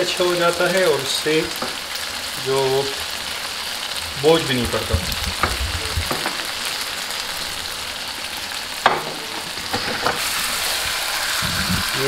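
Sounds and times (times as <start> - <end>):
food sizzling in a pan: 0.0 - 12.0
sharp clicks and knocks: 4.9 - 6.4.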